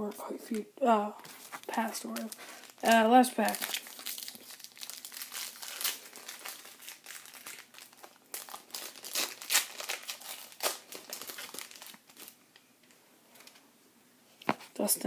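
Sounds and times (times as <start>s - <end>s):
plastic wrapper crinkling: 1.2s - 12.7s.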